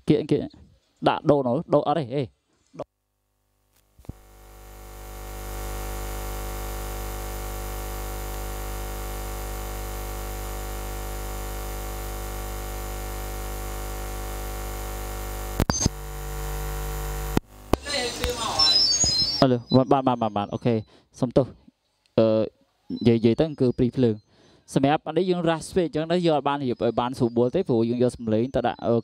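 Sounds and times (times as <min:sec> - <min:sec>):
mains hum: 0:00.0 - 0:29.0
loudspeaker hiss: 0:04.1 - 0:20.8
sharp pops: 0:15.5 - 0:16.0.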